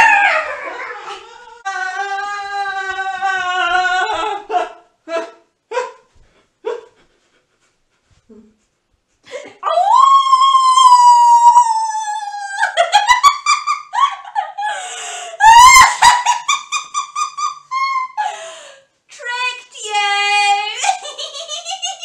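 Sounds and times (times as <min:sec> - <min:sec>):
person imitating wolf howl: 0:00.0 - 0:06.0, 0:09.6 - 0:12.7
high-pitched laughter: 0:15.4 - 0:18.3, 0:20.8 - 0:22.0.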